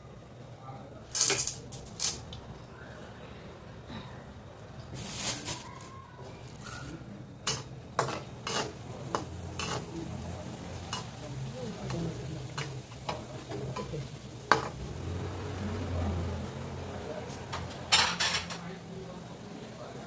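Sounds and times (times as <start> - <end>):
crackers sizzling in hot oil: 1.0 - 2.5, 4.9 - 20.0
metal spatula clinking on wok: 7.4 - 9.9.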